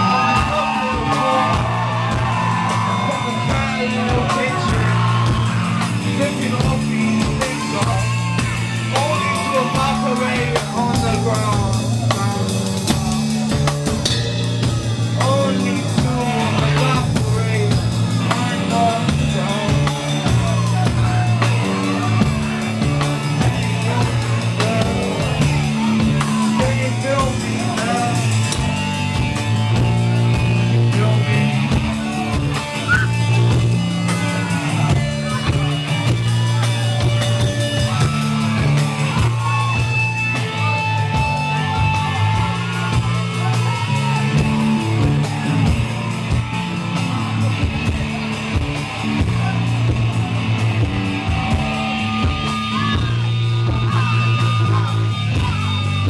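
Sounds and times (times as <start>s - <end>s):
drum kit: 0.0s - 56.0s
electric guitars: 0.0s - 56.0s.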